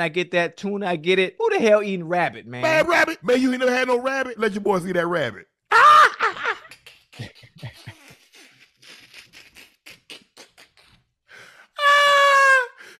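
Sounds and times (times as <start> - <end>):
man laughing hard: 5.7 - 8.6.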